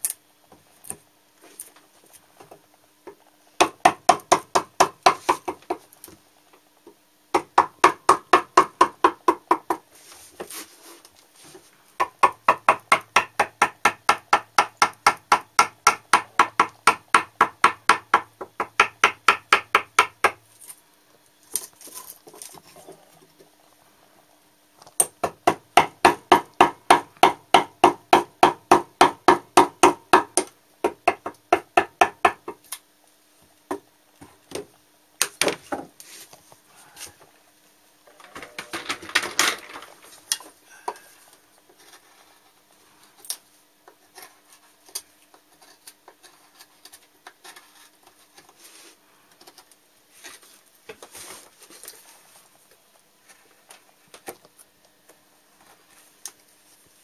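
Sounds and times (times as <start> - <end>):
chisel paring by hand: 3.6 - 5.8, 7.4 - 9.8, 12.0 - 20.4, 25.0 - 32.6
hammer striking chisel into wood: 3.6 - 5.8, 7.4 - 9.8, 12.0 - 20.4, 25.0 - 32.6.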